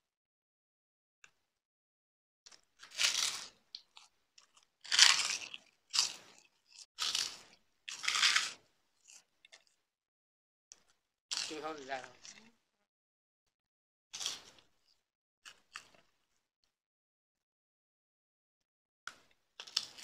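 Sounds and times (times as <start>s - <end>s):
crackers crunching: 2.5s - 9.8s, 10.8s - 12.6s, 14.2s - 16.4s, 19.1s - 20.0s.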